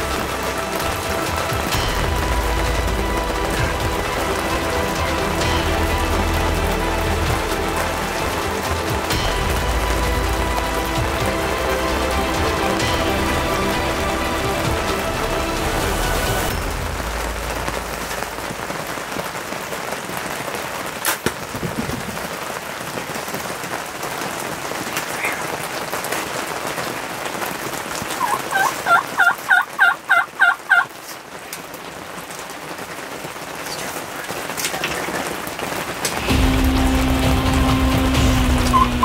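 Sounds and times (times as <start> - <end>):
steady rain hiss: 0.0 - 39.0
wild turkey calling: 28.2 - 31.2.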